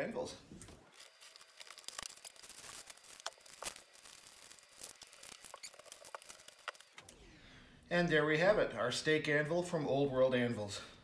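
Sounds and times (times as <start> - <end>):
cardboard and paper crinkling: 0.7 - 7.0.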